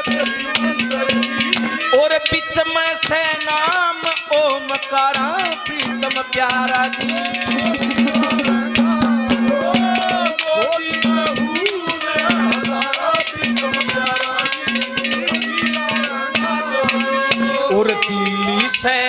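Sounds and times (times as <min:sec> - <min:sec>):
hand drums: 0:00.0 - 0:19.0
harmonium melody: 0:00.0 - 0:19.0
held drone: 0:07.0 - 0:09.8.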